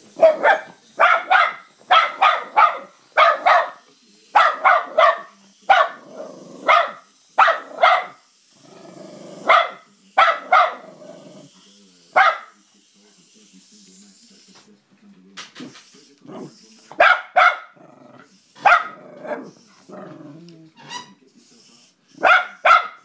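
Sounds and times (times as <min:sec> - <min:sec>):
small dog barking: 0:00.2 - 0:03.8, 0:04.4 - 0:06.0, 0:06.6 - 0:08.2, 0:09.4 - 0:10.9, 0:12.2 - 0:12.6, 0:17.0 - 0:17.8, 0:18.6 - 0:19.5, 0:22.2 - 0:23.0.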